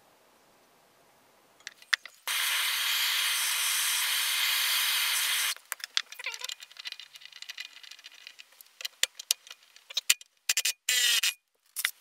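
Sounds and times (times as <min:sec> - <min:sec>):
propane torch hissing: 0:02.3 - 0:05.6.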